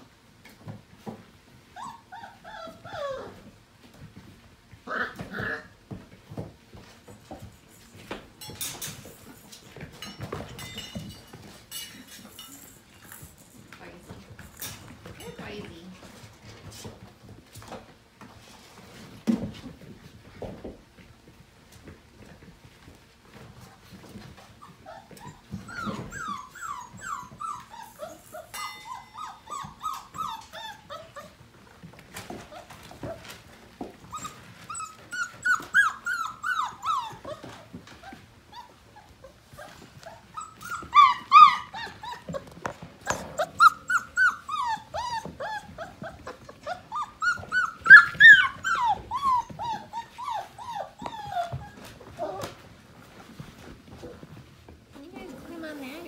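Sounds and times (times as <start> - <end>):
puppies yipping and squealing: 1.7 - 3.4, 24.4 - 31.4, 32.2 - 52.7.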